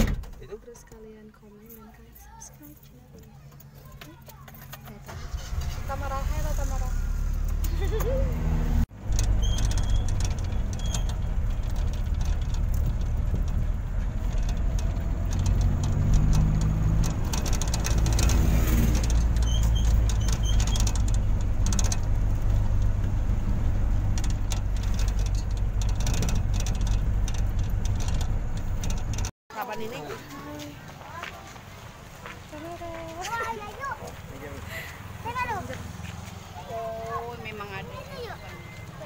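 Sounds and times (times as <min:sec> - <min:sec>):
vehicle engine and road noise: 0:00.0 - 0:39.0
light knocks and rattles: 0:09.0 - 0:29.3.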